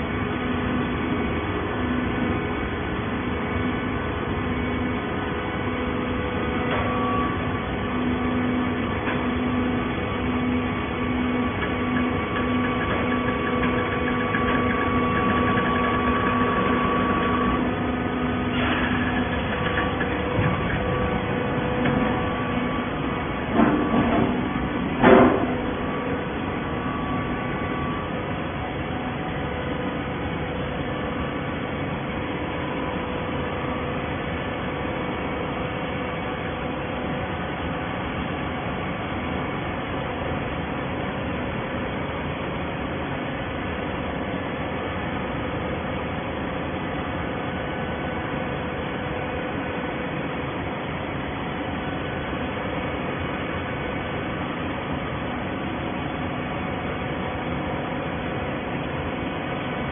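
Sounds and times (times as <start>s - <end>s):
held hum: 0.0s - 37.1s
baling machine drone: 0.0s - 37.7s.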